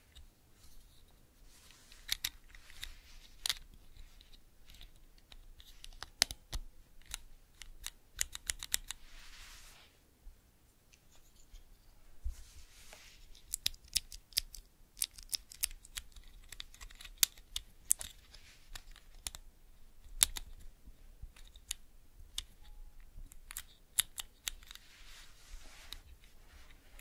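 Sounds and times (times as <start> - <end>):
mechanical keyboard clicks: 5.9 - 9.0.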